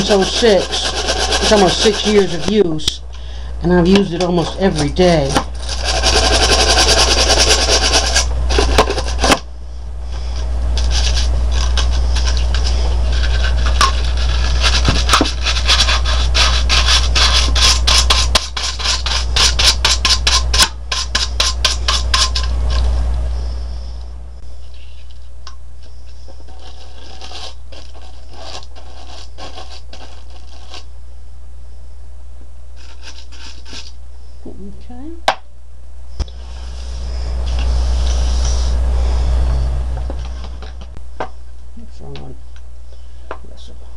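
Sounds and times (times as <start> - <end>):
brush scrubbing plastic: 0.0 - 2.8, 3.9 - 9.4, 10.8 - 22.8, 25.8 - 30.9, 32.8 - 34.0
steady low hum: 0.0 - 43.9.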